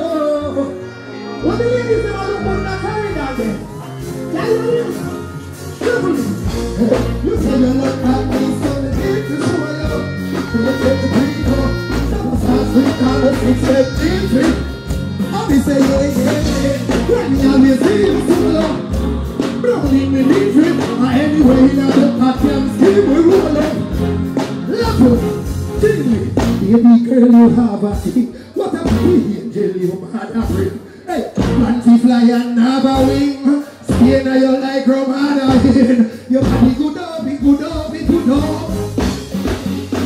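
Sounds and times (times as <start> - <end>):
man singing into a microphone: 0.0 - 3.2, 4.4 - 24.0, 24.7 - 38.7
live band music: 0.0 - 40.0
drum beat: 35.5 - 36.8.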